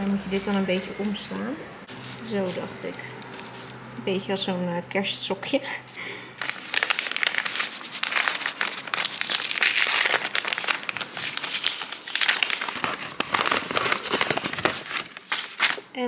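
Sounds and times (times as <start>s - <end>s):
paper wrapping crinkling: 1.9s - 4.0s, 6.0s - 16.0s.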